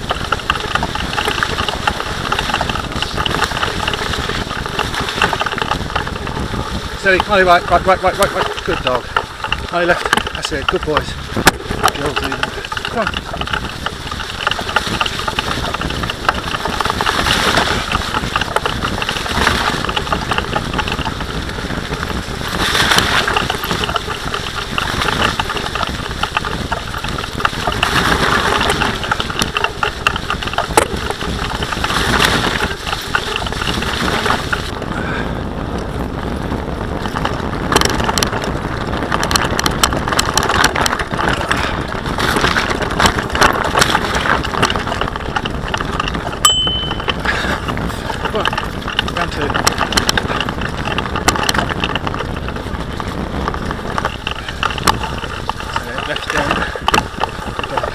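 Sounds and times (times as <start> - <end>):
sharp rattles and knocks: 0.0 - 35.0, 35.7 - 57.9
bicycle tyres rumbling on dirt: 0.0 - 57.9.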